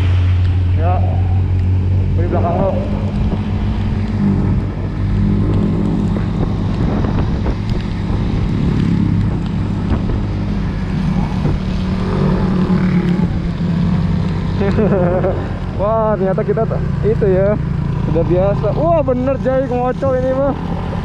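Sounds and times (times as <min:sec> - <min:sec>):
wind noise on microphone: 0:01.7 - 0:14.2.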